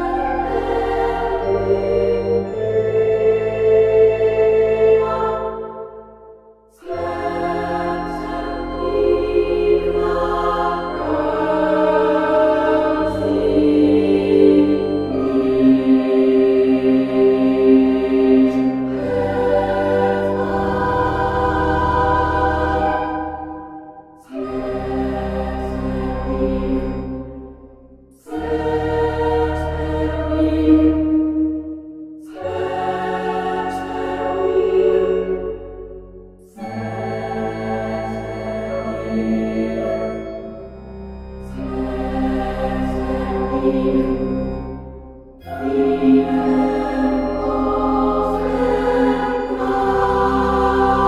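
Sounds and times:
choir singing held chords: 0.0s - 51.0s.

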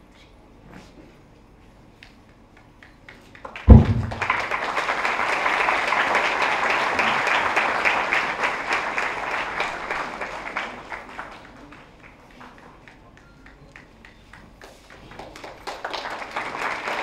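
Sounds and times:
crowd applauding: 3.1s - 17.0s
sharp low thump: 3.7s - 4.4s.

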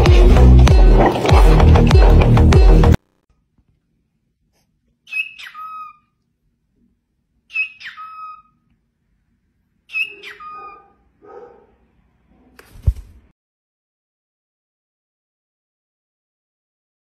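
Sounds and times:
cockatiel calling: 5.1s - 6.1s, 7.5s - 8.6s, 9.9s - 10.9s.

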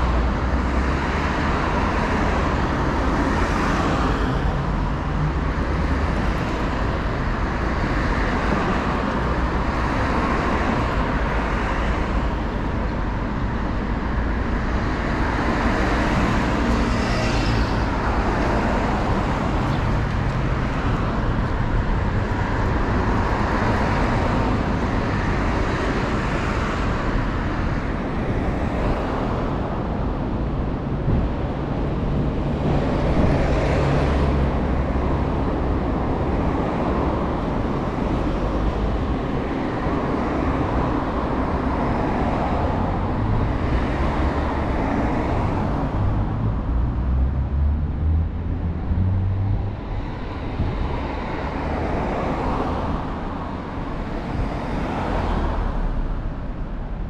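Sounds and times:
traffic rumble: 0.0s - 57.0s.

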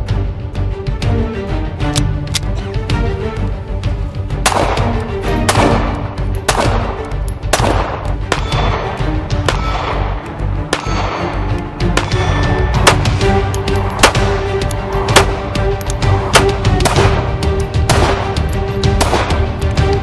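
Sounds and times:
pistol shots: 4.4s - 14.4s, 15.1s - 15.5s, 16.3s - 19.5s.

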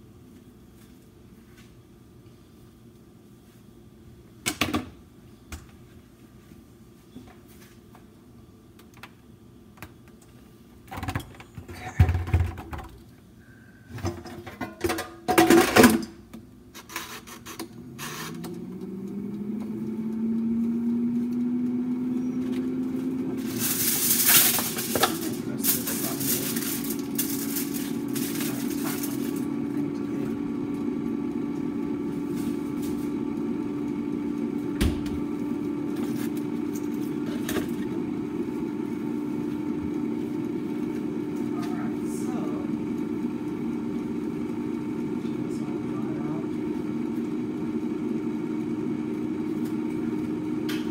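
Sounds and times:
appliance fan motor humming: 8.6s - 50.9s
handling noise: 23.3s - 29.6s.

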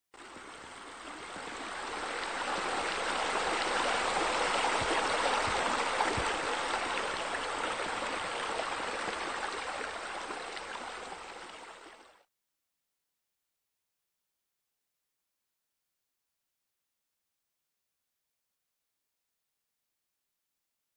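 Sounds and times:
running water rushing and splashing: 0.2s - 12.3s.

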